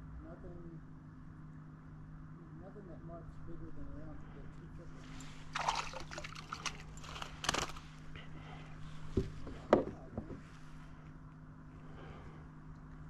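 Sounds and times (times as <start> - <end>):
fish splashing in water: 5.4 - 7.8.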